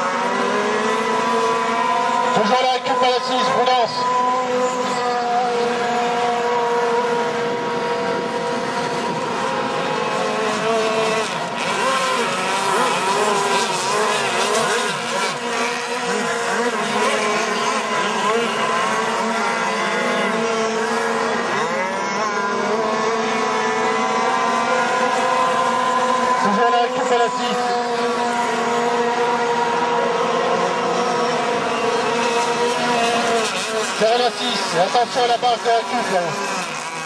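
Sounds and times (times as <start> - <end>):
model boat engines whining: 0.0 - 37.0.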